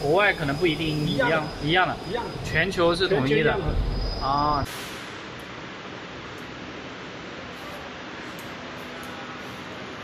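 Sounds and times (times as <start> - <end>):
cable-twisting machinery hissing: 0.0 - 5.2.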